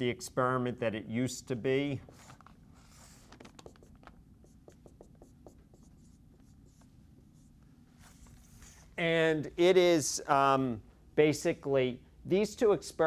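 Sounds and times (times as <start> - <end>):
marker writing on whiteboard: 2.0 - 8.9.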